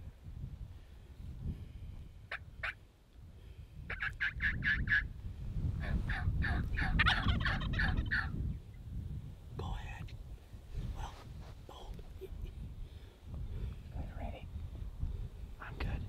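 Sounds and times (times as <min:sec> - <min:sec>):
turkey gobbling: 0:02.3 - 0:02.8, 0:03.9 - 0:05.1, 0:06.1 - 0:08.3.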